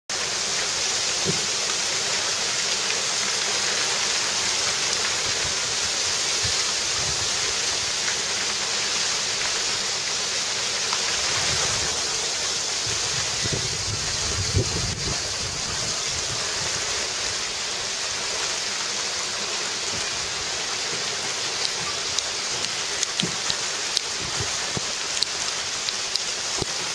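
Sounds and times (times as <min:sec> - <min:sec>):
wintry shower on roof: 0:00.1 - 0:26.9
sharp ticks: 0:21.6 - 0:24.2, 0:24.8 - 0:26.8.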